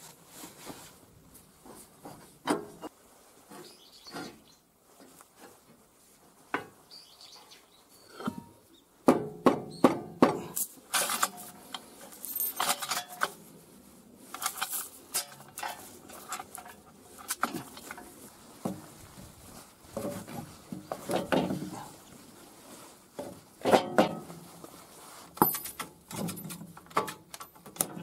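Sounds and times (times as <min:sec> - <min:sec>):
steel chain clinking and rattling: 0:12.1 - 0:13.4, 0:25.4 - 0:27.6.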